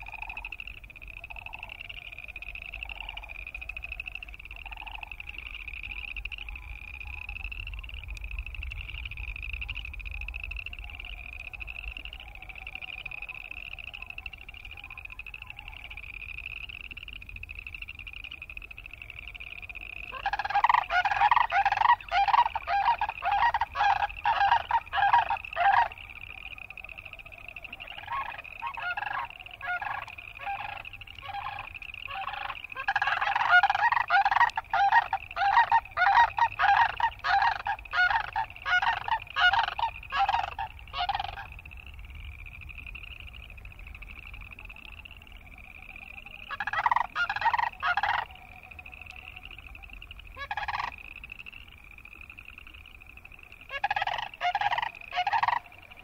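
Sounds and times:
frogs trilling: 0.0s - 56.0s
cranes calling: 18.9s - 41.6s, 46.2s - 51.1s, 53.7s - 56.0s.

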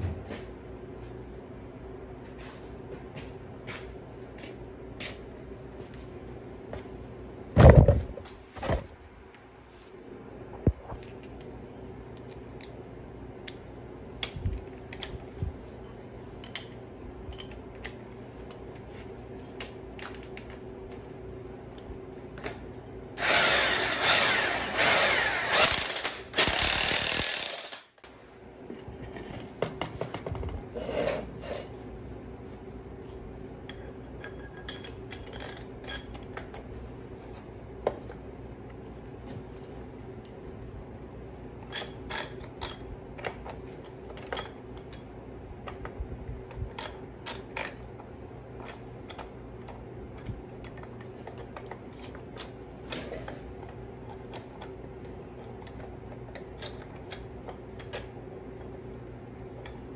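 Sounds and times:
power tool running in surges: 23.2s - 27.8s
metal tools clinking on concrete: 33.7s - 36.7s, 41.6s - 45.2s.

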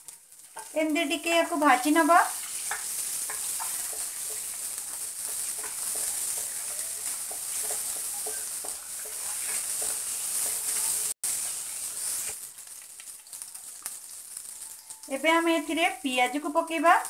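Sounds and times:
hot oil sizzling: 0.0s - 17.0s
wooden spatula scraping pan: 2.5s - 11.2s.

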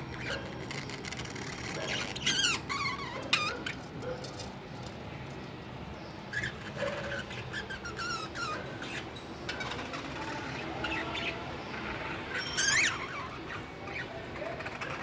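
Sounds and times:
budgerigars chirping: 6.3s - 15.0s.

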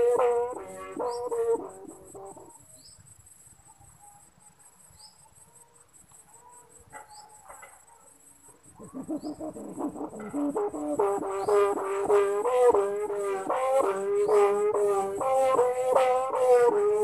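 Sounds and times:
kite hummer humming: 0.0s - 2.6s, 9.0s - 17.0s.

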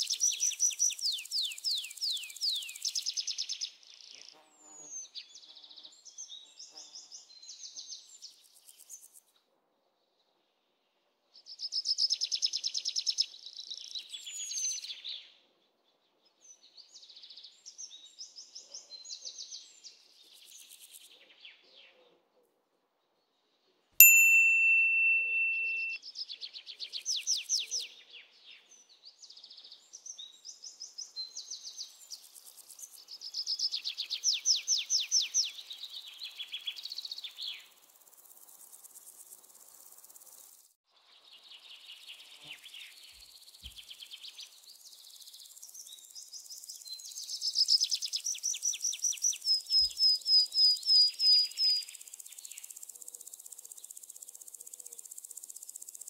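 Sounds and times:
high chime ding: 24.0s - 26.0s.

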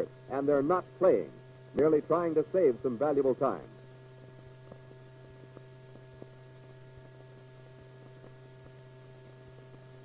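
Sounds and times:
faint clicks and crackles: 4.2s - 10.0s.

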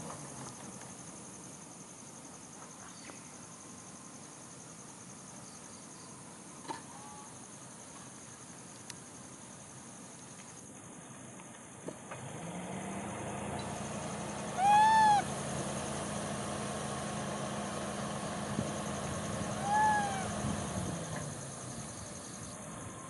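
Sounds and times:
low engine hum: 11.9s - 23.0s
macaque coo calls: 14.5s - 15.3s, 19.5s - 20.4s.

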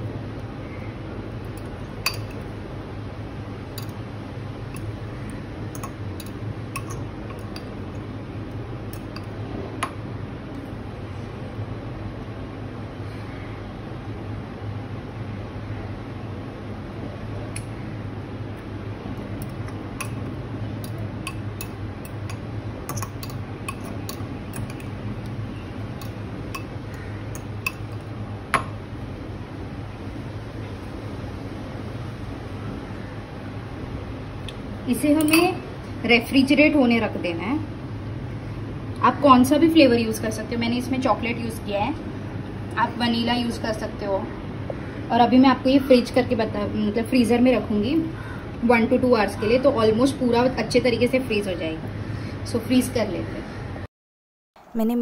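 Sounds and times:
steady low hum: 0.0s - 53.9s
fork clinking glass bowl: 1.6s - 2.4s, 5.8s - 7.7s, 21.3s - 24.9s.

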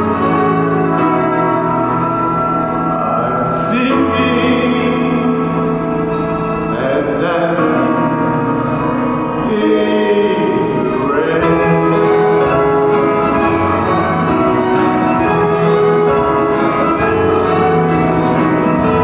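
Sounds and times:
orchestra playing show tune: 0.0s - 19.0s
man singing with vibrato: 2.0s - 13.0s.

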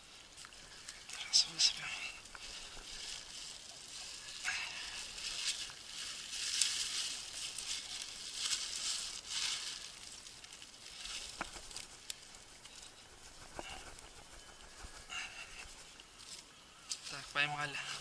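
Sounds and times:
fish trap netting rustling: 2.2s - 16.3s
plastic bag crinkling: 2.4s - 16.0s.

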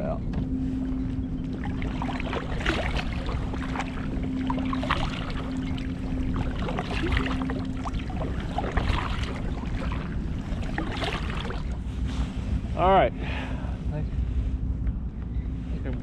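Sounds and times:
faint steady hum: 0.0s - 16.0s
wind rumbling on microphone: 0.0s - 16.0s
water splashing against kayak: 1.5s - 11.9s.

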